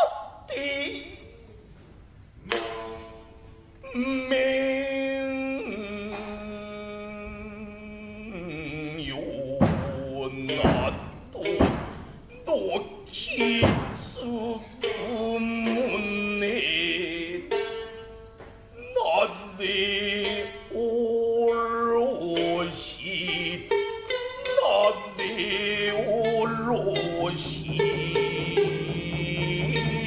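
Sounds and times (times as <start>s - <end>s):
shamisen plucking sharp notes: 2.4s - 3.9s, 8.6s - 18.8s, 19.8s - 30.0s
chanter singing wavering phrases: 6.7s - 17.8s, 18.8s - 23.8s, 24.4s - 30.0s.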